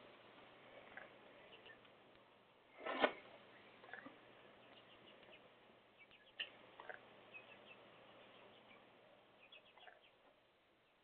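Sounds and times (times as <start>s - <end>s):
faint steady hiss: 0.0s - 11.0s
soft ticks and chirps: 0.8s - 2.3s, 3.8s - 7.8s.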